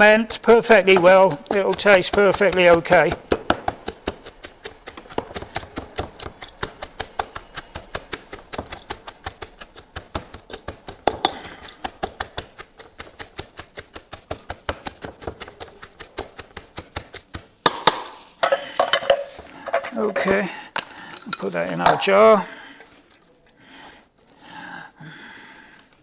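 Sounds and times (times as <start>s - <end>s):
cabbage pounded in metal bowl: 0.0s - 22.1s.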